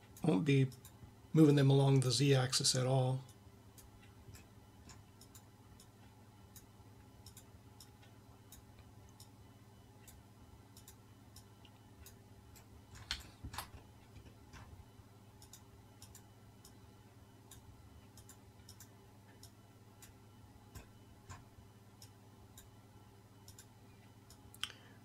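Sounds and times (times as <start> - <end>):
low steady hum: 0.0 - 25.0
mouse and keyboard clicking: 13.0 - 13.8.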